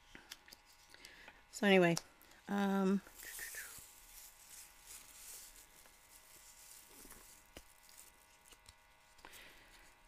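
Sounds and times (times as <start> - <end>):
plastic yarn rustling: 3.0 - 9.2.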